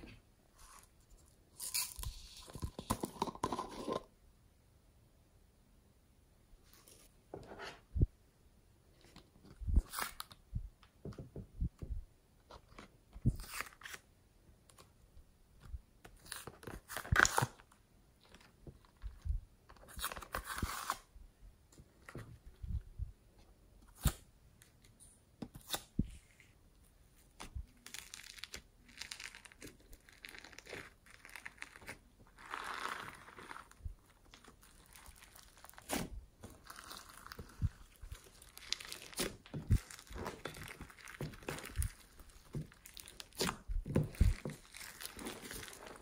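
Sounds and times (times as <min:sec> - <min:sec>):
foam clay tearing and rustling: 0:27.8 - 0:46.0.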